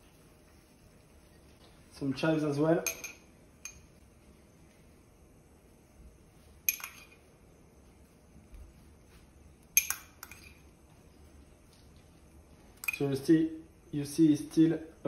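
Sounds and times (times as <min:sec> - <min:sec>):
metal spoon tapping glass jar: 0:02.8 - 0:03.9, 0:06.7 - 0:07.2, 0:09.8 - 0:10.6.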